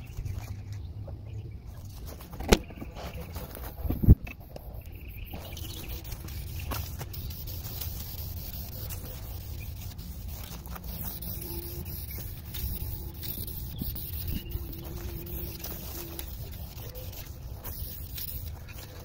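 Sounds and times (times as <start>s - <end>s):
aerosol spray can hissing: 5.4s - 18.6s.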